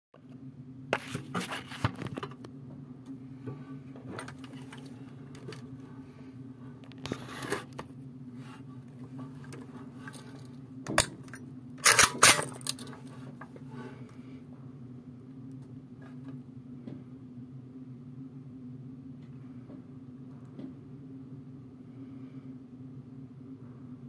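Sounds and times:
steady low hum: 0.2 - 24.0
rifle mechanism clicks and clacks: 11.0 - 13.0.

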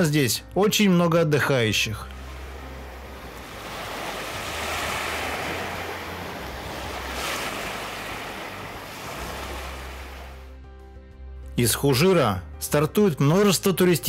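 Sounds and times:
small waves washing on beach: 2.1 - 10.5.

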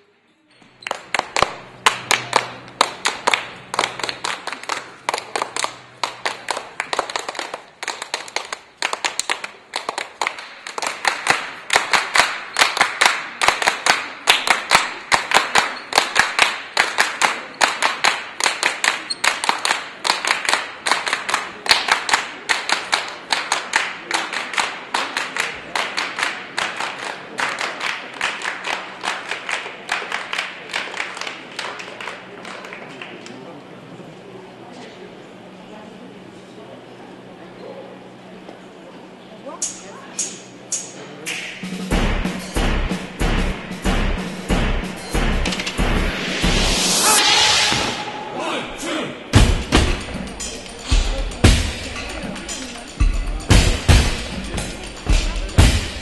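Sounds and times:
group clapping in rhythm: 0.9 - 33.1, 41.3 - 47.1, 49.4 - 56.0.

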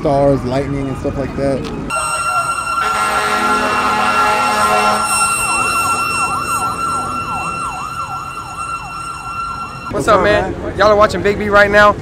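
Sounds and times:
horn blast: 1.9 - 9.9
fire engine siren yelping: 1.9 - 10.0.

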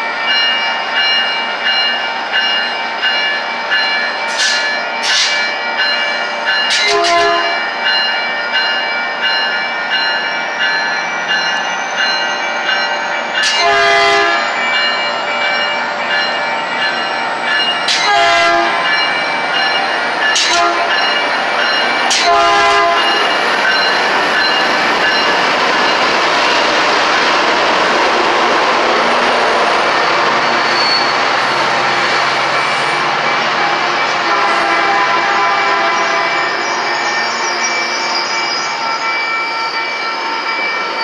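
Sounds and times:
train wheels on rails: 0.0 - 41.0
locomotive air horn blasts: 6.9 - 7.6, 13.6 - 14.4, 18.0 - 18.9, 20.5 - 20.9, 22.1 - 23.2, 33.6 - 36.4.

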